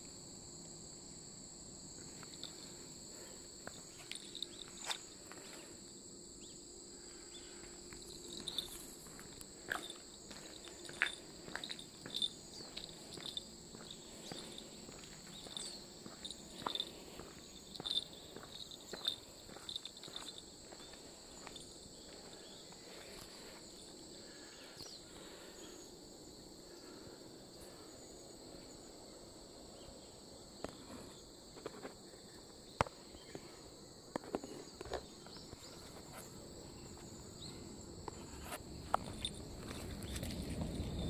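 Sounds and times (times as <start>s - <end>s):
insects singing: 0.0s - 41.0s
light footsteps: 7.6s - 23.9s, 38.1s - 41.0s.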